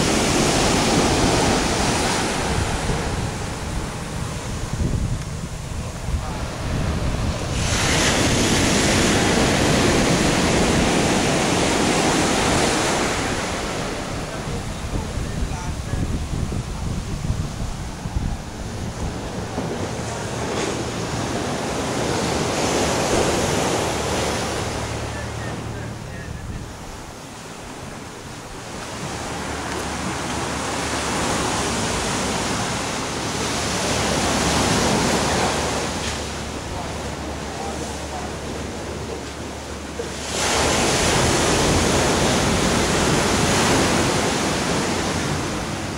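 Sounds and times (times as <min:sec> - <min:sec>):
wind buffeting microphone: 0:00.0 - 0:37.4
surf breaking: 0:00.0 - 0:45.9.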